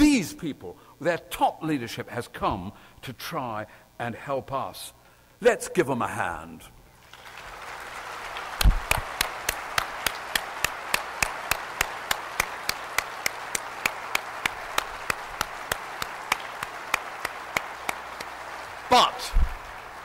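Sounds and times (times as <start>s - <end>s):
audience applauding: 7.0s - 20.0s
close hand claps: 7.0s - 20.0s.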